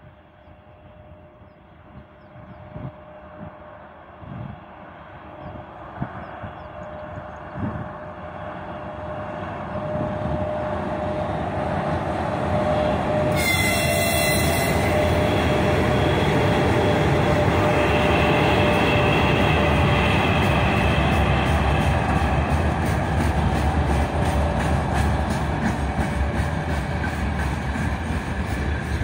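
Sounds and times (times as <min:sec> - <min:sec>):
freight train rumbling past: 0:00.0 - 0:29.0
locomotive horn blast: 0:12.5 - 0:22.0.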